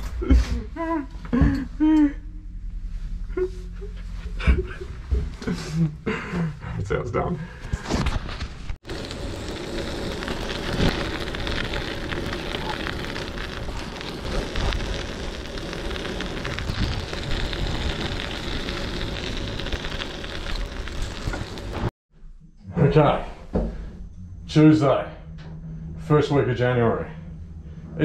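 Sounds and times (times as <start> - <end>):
bicycle tyres rolling on gravel: 8.3 - 21.9
wind on microphone: 10.6 - 19.7.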